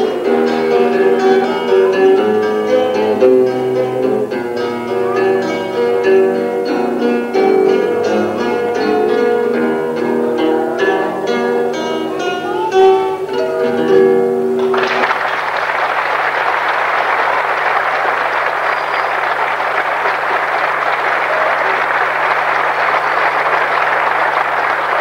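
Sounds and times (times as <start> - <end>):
audience applause: 0.0 - 3.4, 4.3 - 6.2, 14.6 - 25.0
acoustic guitars plucking: 0.0 - 15.1.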